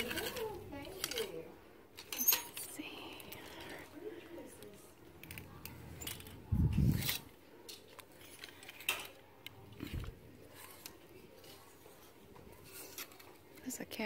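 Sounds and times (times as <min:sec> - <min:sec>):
plastic hangers clicking on rack: 0:00.0 - 0:03.6, 0:05.2 - 0:11.0.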